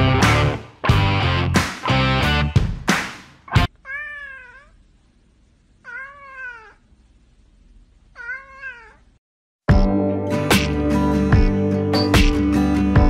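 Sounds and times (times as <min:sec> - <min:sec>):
loud music: 0:00.0 - 0:03.7, 0:09.7 - 0:13.0
cat meowing: 0:03.7 - 0:04.8, 0:05.8 - 0:06.9, 0:08.1 - 0:09.2.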